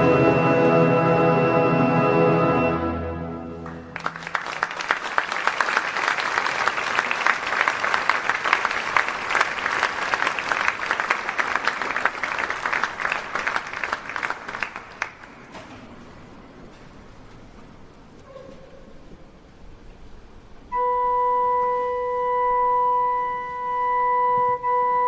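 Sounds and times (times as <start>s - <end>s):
orchestra chord: 0.0s - 4.2s
audience applause: 3.6s - 15.6s.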